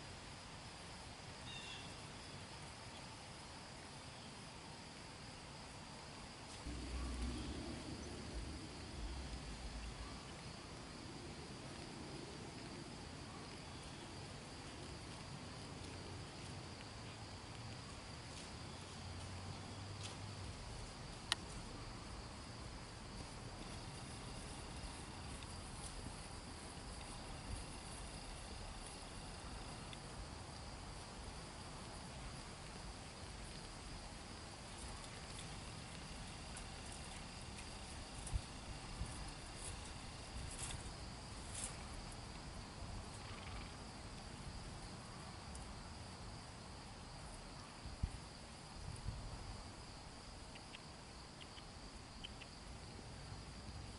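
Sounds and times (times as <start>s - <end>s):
low rumble: 6.7s - 10.3s.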